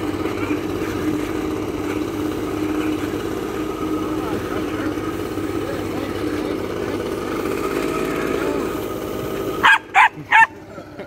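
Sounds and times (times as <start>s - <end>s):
leaf blower running: 0.0s - 11.0s
puppy barking: 9.6s - 10.6s.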